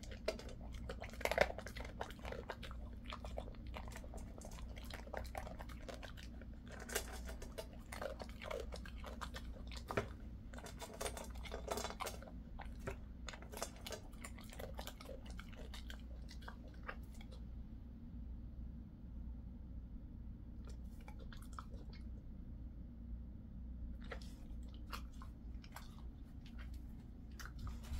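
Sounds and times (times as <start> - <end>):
dog chewing crunches: 0.0 - 17.4, 24.0 - 27.9
steady low hum: 0.0 - 27.9.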